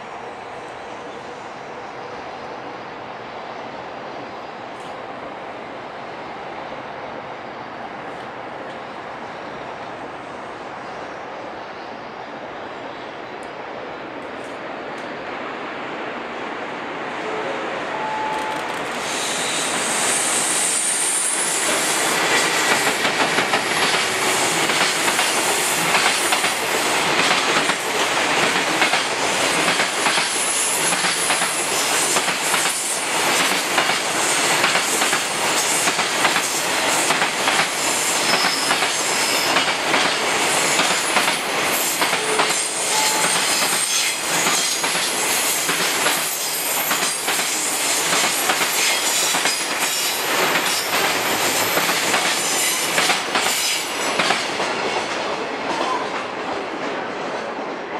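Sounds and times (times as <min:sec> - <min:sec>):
high wheel squeals: 0:18.1 - 0:21.7
train wheels clattering over rail joints: 0:22.2 - 0:42.6, 0:43.2 - 0:55.2.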